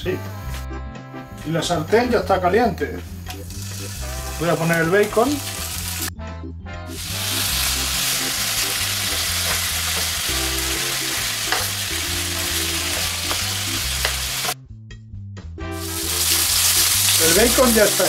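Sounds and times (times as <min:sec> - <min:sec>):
bacon sizzling in a frying pan: 0:03.3 - 0:06.1, 0:06.9 - 0:14.6, 0:15.8 - 0:18.0.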